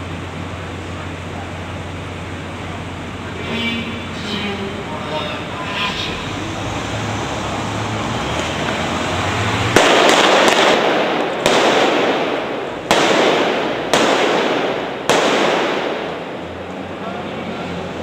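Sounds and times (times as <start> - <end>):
handgun blank shots echoing: 9.8 - 16.2.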